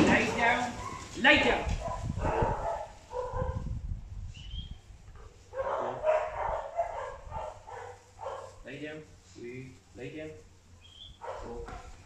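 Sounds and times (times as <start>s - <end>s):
dog barking: 0.1s - 3.7s, 5.5s - 8.6s, 11.2s - 11.8s.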